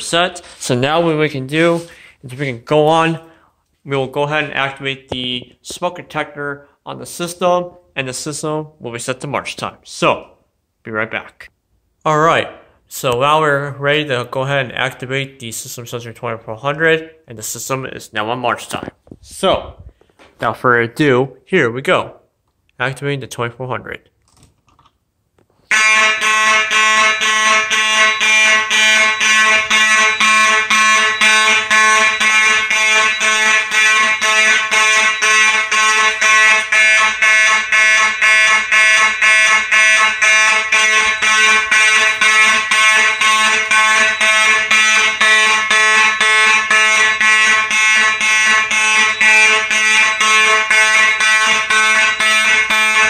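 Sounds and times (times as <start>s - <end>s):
fire alarm horn blasts: 25.7s - 53.0s.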